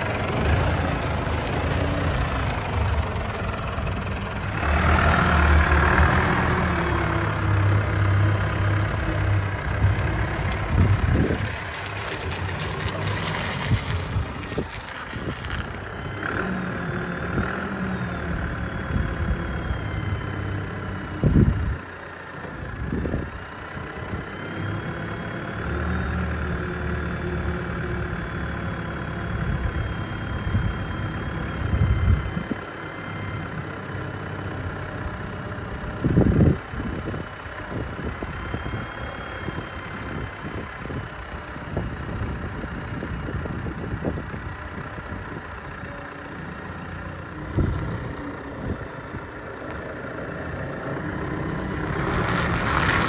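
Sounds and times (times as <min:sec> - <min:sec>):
forklift diesel engine revving: 0:00.0 - 0:53.0
high engine whine: 0:00.0 - 0:53.0
wind gusts on microphone: 0:07.4 - 0:15.8.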